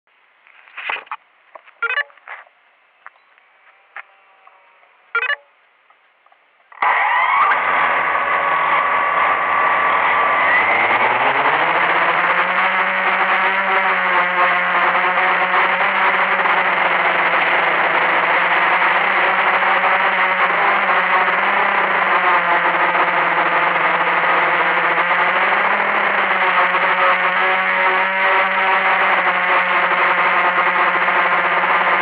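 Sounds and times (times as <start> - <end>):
short chirp: 1.8 - 2.2, 5.2 - 5.5
quadcopter motors whining: 6.7 - 32.0.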